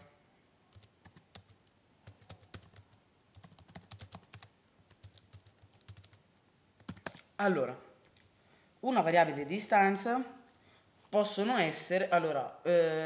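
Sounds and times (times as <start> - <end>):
computer keyboard typing: 0.7 - 6.2, 6.8 - 7.3.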